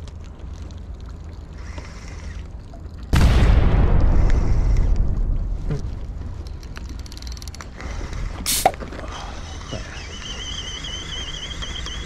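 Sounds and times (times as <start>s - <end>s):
fishing reel whining: 9.1s - 12.0s.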